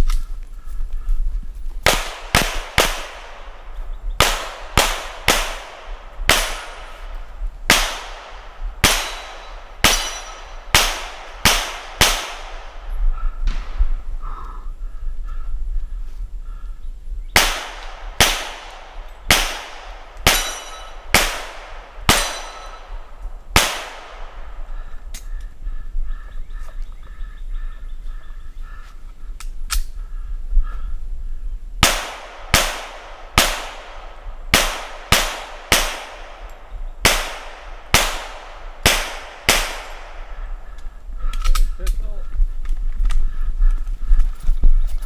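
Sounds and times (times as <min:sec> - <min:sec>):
pistol shots: 0:01.8 - 0:03.6, 0:04.2 - 0:12.8, 0:17.4 - 0:24.7, 0:31.8 - 0:40.5.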